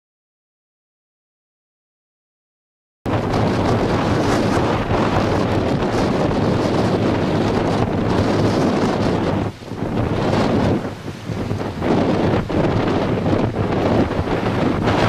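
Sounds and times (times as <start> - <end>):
heavy breaking surf: 3.1 - 15.0
wind buffeting microphone: 3.1 - 15.0.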